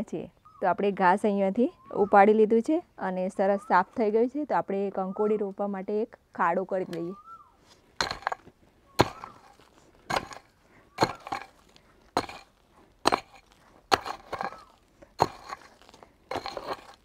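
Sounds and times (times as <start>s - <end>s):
hoe chopping into stony soil: 8.0s - 17.0s.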